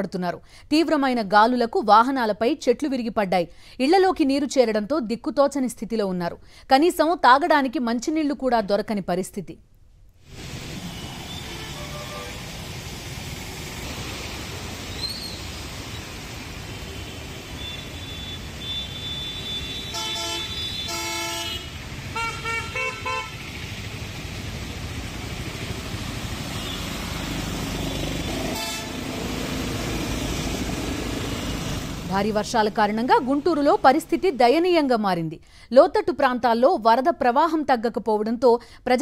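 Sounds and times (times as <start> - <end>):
water noise: 10.2 - 20.9, 23.3 - 34.6
traffic noise: 10.2 - 34.9
vehicle horns honking: 10.9 - 12.6, 16.8 - 23.5, 26.5 - 29.1.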